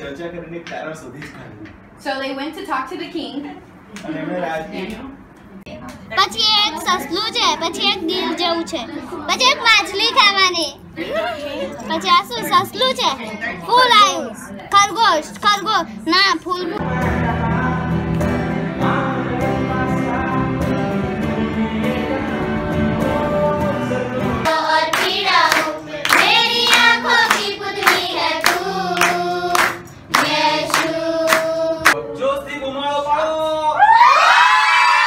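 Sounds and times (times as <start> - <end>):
live guitar music: 16.8 - 31.8
group singing together: 16.8 - 32.2
hands clapping in time: 24.9 - 31.5.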